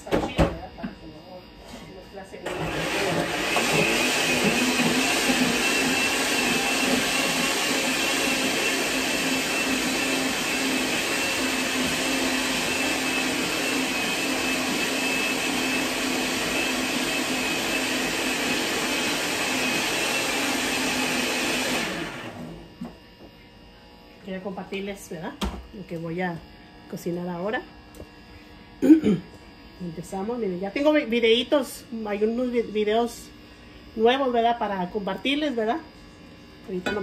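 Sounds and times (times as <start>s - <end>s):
electric blender running: 2.3s - 23.3s.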